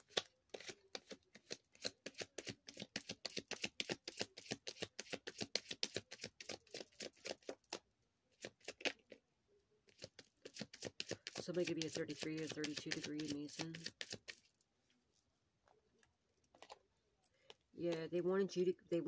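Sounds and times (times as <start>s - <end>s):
cards being shuffled: 0.0s - 7.8s, 8.4s - 9.2s, 9.9s - 14.5s.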